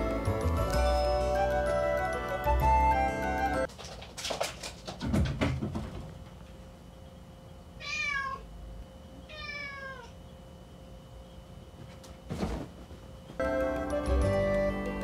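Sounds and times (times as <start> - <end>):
cat scrambling on wooden shelves: 3.7 - 6.4
cat meowing: 7.8 - 8.5, 9.3 - 10.2.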